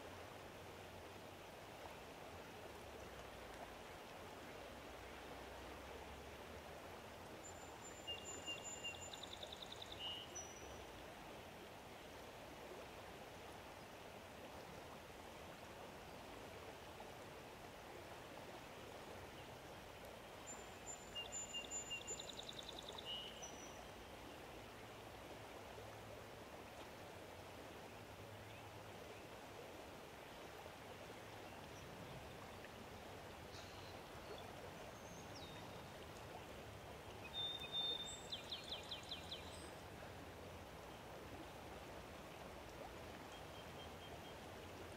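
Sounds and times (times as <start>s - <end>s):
faint rushing stream: 0.0s - 44.9s
songbird whistle and trill: 37.3s - 39.4s.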